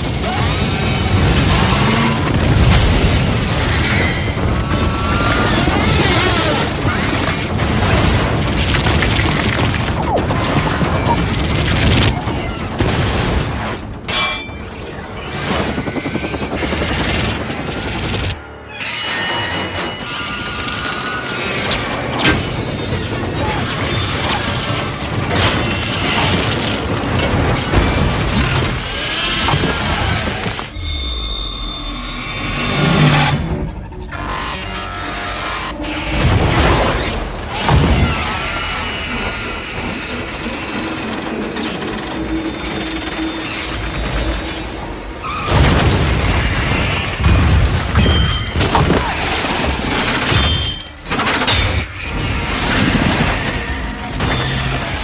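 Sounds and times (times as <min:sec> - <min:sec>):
explosions: 0:00.9 - 0:14.1
crashing and grinding metal: 0:33.0 - 0:55.0.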